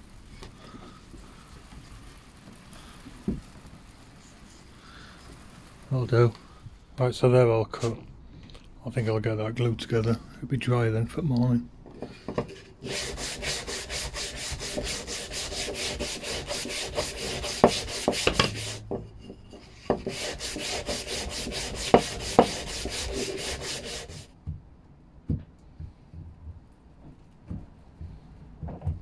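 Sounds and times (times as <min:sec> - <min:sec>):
hand-sanding wood with sandpaper: 0:12.5 - 0:24.3
sharp wooden knocks: 0:14.3 - 0:19.1, 0:19.9 - 0:24.6.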